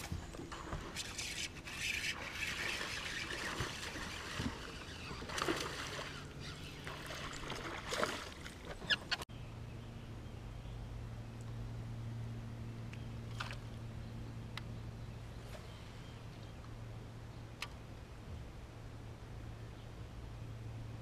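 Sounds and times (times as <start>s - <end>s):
fish splashing in water: 0.6s - 9.1s.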